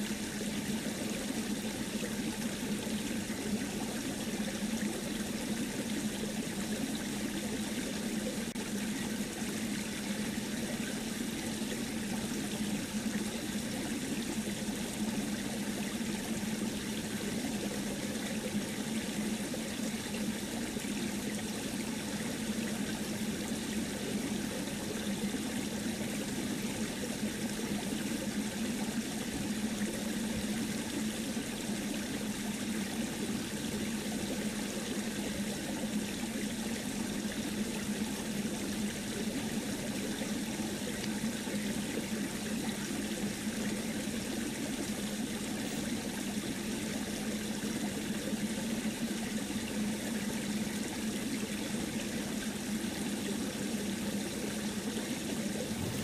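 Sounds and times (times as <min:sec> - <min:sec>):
low hum: 0:55.4 - 0:56.0
steady rushing noise: 0:55.5 - 0:56.0.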